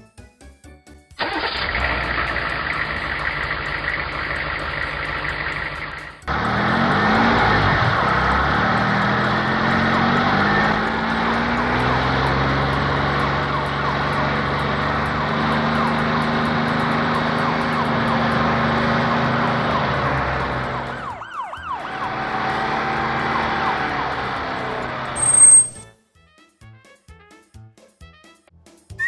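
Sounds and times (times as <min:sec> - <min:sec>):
engine running steadily: 0:01.2 - 0:25.8
warbling police siren: 0:06.7 - 0:16.3, 0:17.1 - 0:25.8.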